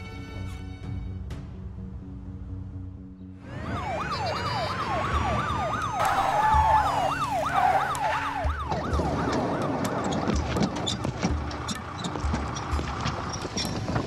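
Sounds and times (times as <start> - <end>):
police siren fast yelp: 3.4 - 10.0
police siren wail: 3.4 - 10.8.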